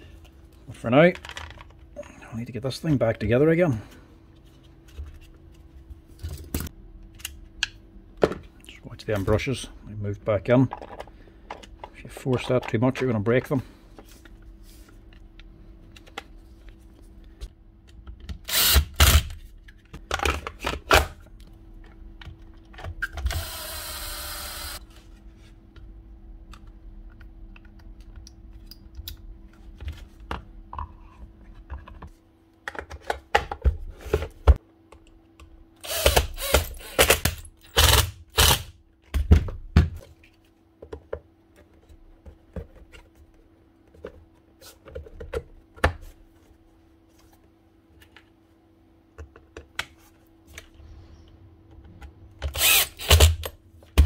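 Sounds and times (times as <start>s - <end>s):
clicks and rattles of parts: 1.1s - 1.8s
power tool running: 23.3s - 24.8s, 35.8s - 38.7s, 52.5s - 53.5s
steady low hum: 33.7s - 54.0s.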